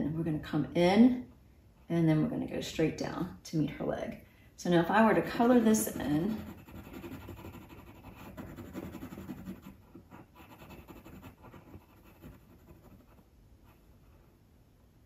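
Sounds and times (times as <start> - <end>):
pencil scratching on canvas: 5.3 - 14.3.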